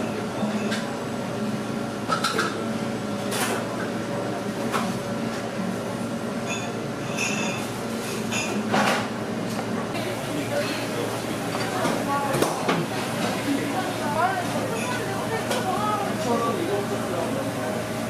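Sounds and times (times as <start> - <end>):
dishes clinking: 6.4 - 9.1, 10.5 - 13.4, 14.6 - 15.8
room hum: 7.6 - 18.0
faint voices: 10.0 - 18.0.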